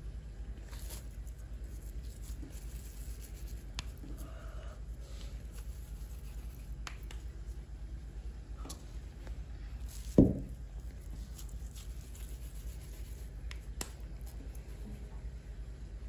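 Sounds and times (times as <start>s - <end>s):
steady low hum: 0.0s - 16.0s
light clicks of dough handling: 0.5s - 7.6s, 8.6s - 15.4s
dull thump: 10.1s - 10.6s.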